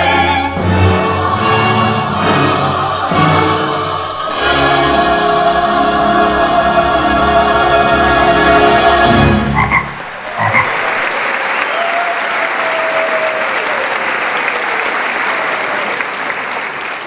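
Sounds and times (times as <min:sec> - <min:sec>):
recorded music: 0:00.0 - 0:10.5
audience applauding: 0:09.5 - 0:17.0
frog croaks: 0:09.6 - 0:10.8.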